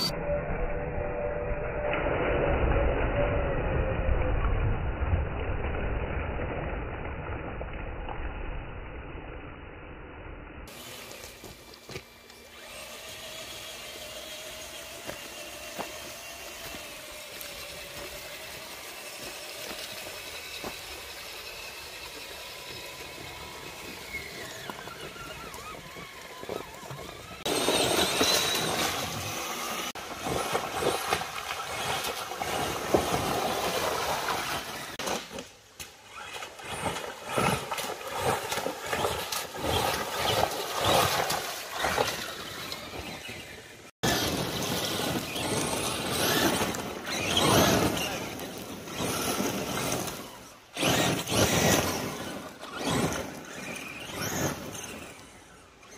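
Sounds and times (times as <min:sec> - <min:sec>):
electric motor whining: 0:10.7 - 0:30.0, 0:39.0 - 0:55.9
water splashing: 0:10.7 - 0:55.2.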